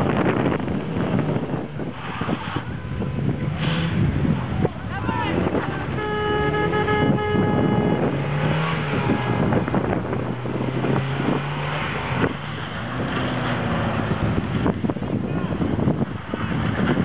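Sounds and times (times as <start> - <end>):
car engine revving: 0.0 - 17.0
car horn: 5.2 - 11.4.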